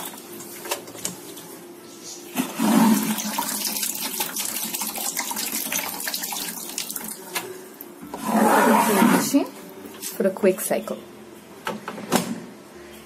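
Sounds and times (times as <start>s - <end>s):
water running and splashing: 2.6s - 7.3s.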